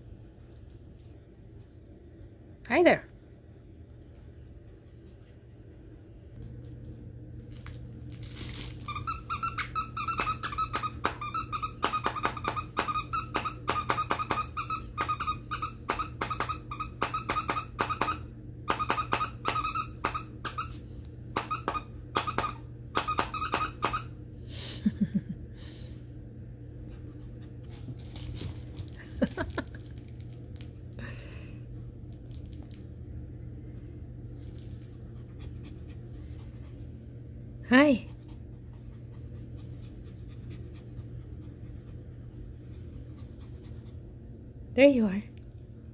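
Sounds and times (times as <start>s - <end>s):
steady low hum: 0.0s - 45.9s
dog toy squeaking: 8.9s - 20.7s, 21.4s - 24.1s.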